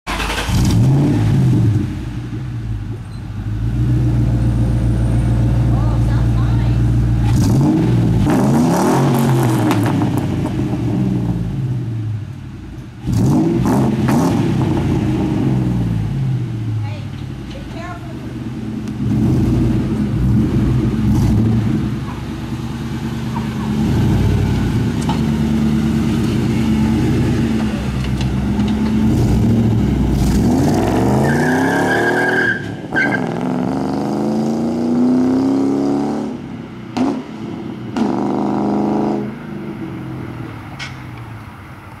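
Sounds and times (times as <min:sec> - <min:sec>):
car engine revving and accelerating: 0:00.1 - 0:02.6, 0:03.5 - 0:12.1, 0:13.0 - 0:16.7, 0:18.4 - 0:40.3.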